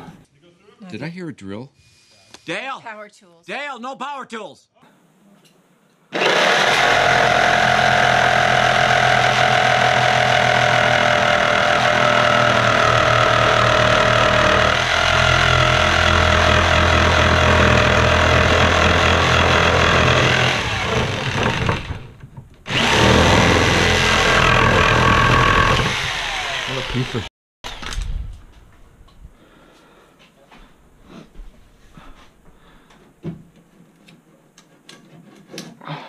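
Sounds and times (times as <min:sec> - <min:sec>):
electric jigsaw sawing wood: 0:06.1 - 0:27.9.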